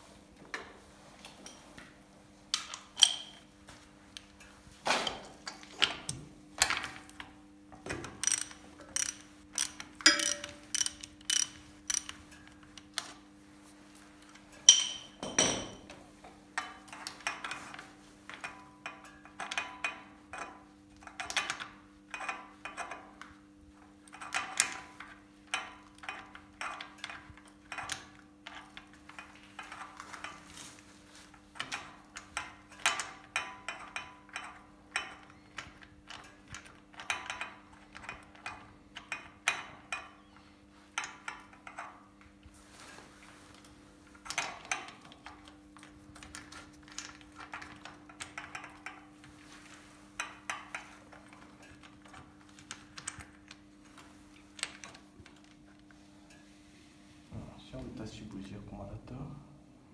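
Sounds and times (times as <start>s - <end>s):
ratchet wrench clicking: 8.2s - 12.2s
metal tool clatter: 8.2s - 13.2s, 14.6s - 15.8s.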